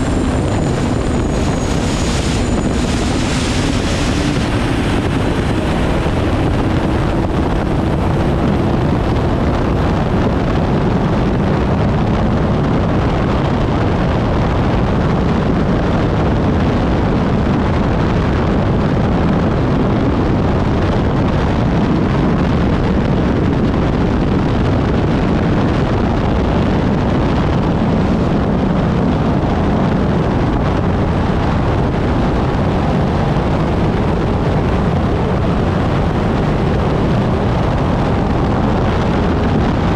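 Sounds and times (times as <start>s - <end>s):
water rushing: 0.0s - 8.4s
turbine engine roaring: 0.0s - 39.9s
wind rushing: 0.0s - 39.9s.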